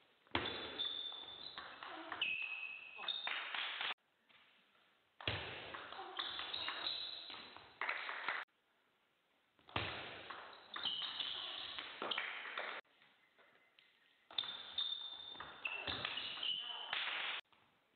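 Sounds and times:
table tennis ball pinging: 0:00.3 - 0:03.9, 0:05.2 - 0:08.4, 0:09.7 - 0:12.8, 0:14.3 - 0:17.4.

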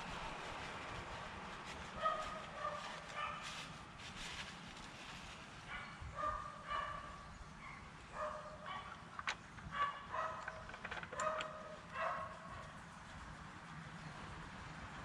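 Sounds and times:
dog yipping and barking: 0:05.7 - 0:08.9, 0:09.8 - 0:12.6.

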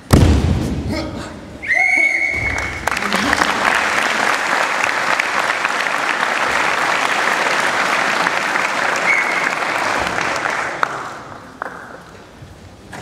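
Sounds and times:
audience applauding: 0:02.4 - 0:12.3.

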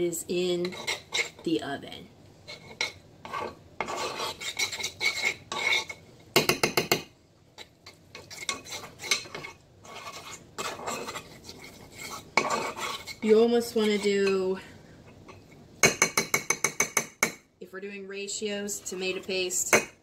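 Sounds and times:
spoon scraping ceramic dish: 0:00.6 - 0:01.5, 0:02.4 - 0:07.0, 0:07.6 - 0:14.4.

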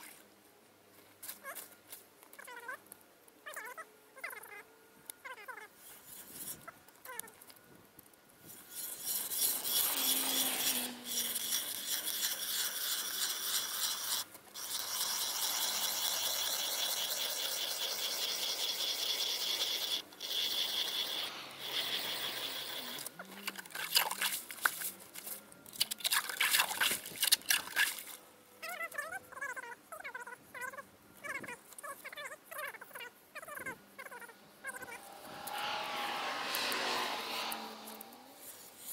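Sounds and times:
ice auger rasping through ice: 0:08.4 - 0:28.2, 0:34.8 - 0:38.9.

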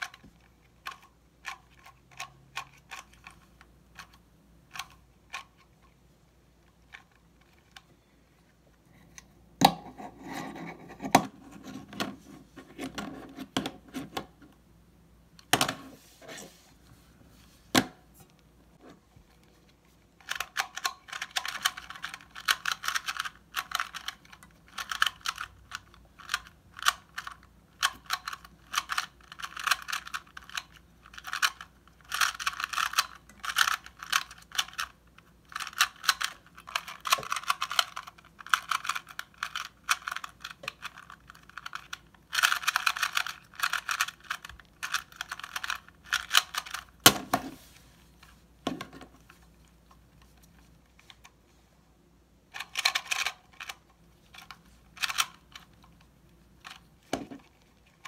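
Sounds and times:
puzzle cube clicking and rattling: 0:00.0 - 0:06.0, 0:20.1 - 0:47.0, 0:52.5 - 0:58.0.

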